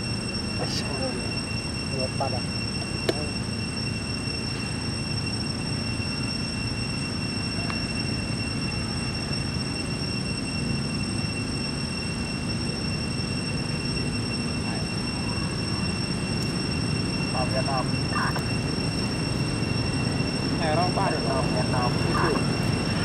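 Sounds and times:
thin high-pitched whine: 0.0s - 23.0s
low outdoor rumble: 13.9s - 23.0s.

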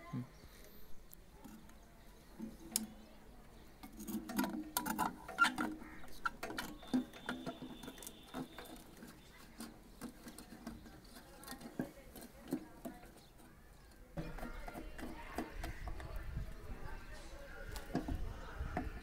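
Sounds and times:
plastic clicks taps and scraping: 2.4s - 3.0s, 3.8s - 16.2s.

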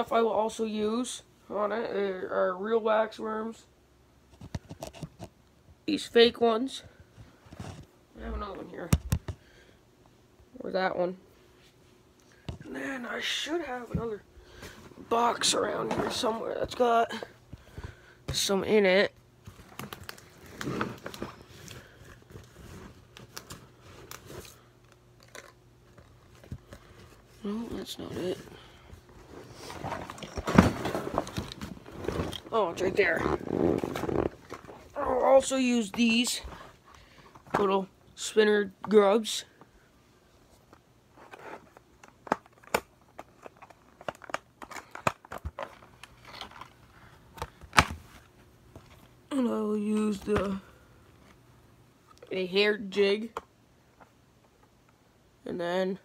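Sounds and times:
plastic rustling: 19.4s - 35.5s
plastic boxes rattling: 29.6s - 35.5s.

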